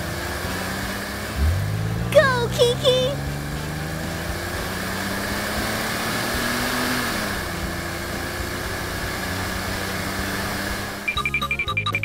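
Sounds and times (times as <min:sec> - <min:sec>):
bouncy children's music: 0:01.4 - 0:03.2, 0:11.1 - 0:12.0.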